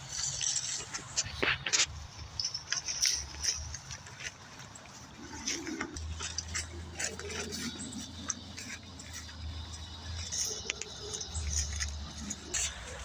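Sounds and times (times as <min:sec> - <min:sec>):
footsteps through grass and leaves: 0:00.0 - 0:13.0
plants rustling and clicking: 0:00.0 - 0:13.0.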